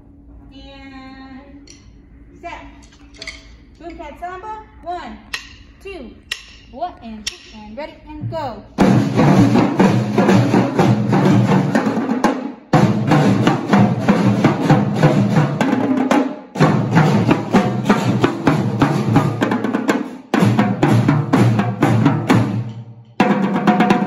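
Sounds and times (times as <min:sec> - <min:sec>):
drumline playing samba groove: 0:08.2 - 0:24.0.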